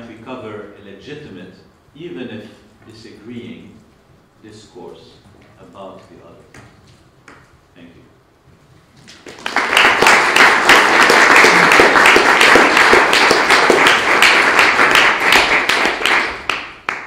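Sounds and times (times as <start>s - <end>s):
audience applauding: 9.1s - 17.0s.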